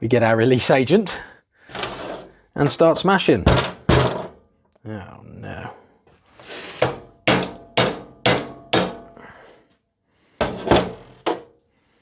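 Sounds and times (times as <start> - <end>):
hammer knocking on plastic: 6.8 - 9.0.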